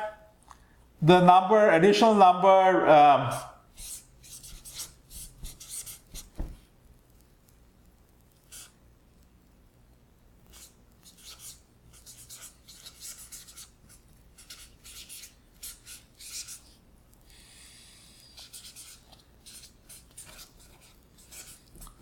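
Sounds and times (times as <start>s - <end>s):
marker writing on whiteboard: 3.3s - 6.6s, 8.5s - 8.8s, 10.4s - 16.7s, 18.3s - 22.0s.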